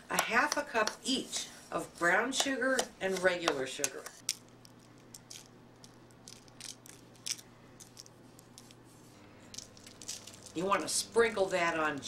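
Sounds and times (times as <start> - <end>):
low steady hum: 0.0 - 12.0
sugar grains pattering: 4.2 - 12.0.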